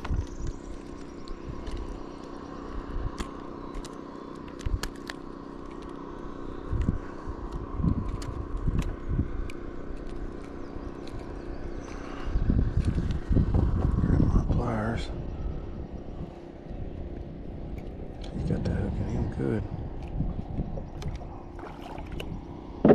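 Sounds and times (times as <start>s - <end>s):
motor hum: 0.0s - 22.9s
wind buffeting microphone: 6.6s - 22.9s.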